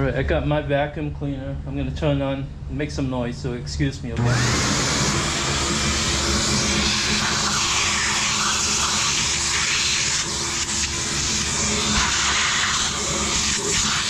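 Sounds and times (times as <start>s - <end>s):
vacuum cleaner running: 4.2s - 14.0s.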